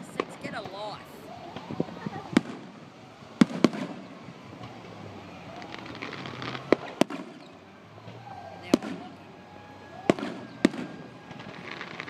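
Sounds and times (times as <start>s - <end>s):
firework bangs: 0.0s - 9.2s, 10.0s - 12.0s
firework crackling: 0.0s - 12.0s.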